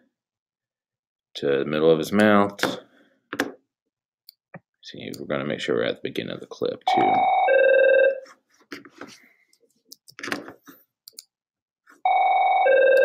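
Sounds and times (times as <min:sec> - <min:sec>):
soft mouse clicks: 0:11.0 - 0:11.3.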